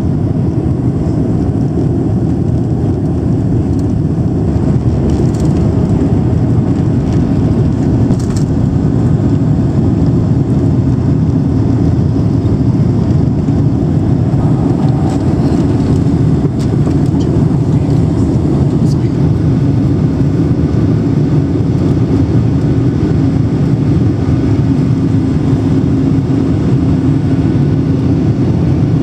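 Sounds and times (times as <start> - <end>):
airliner engines rumbling: 0.0 - 29.0.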